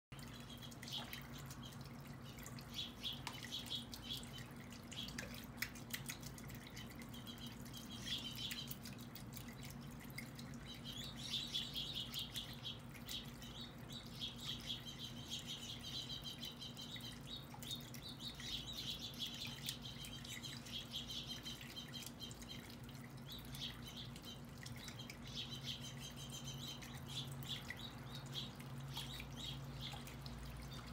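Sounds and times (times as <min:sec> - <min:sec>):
small birds chirping: 0:00.1 - 0:30.9.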